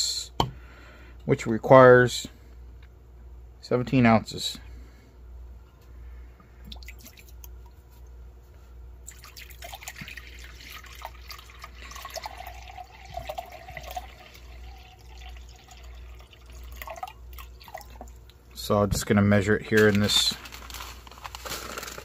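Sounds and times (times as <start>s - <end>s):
water pouring into a glass cup: 9.1s - 18.3s.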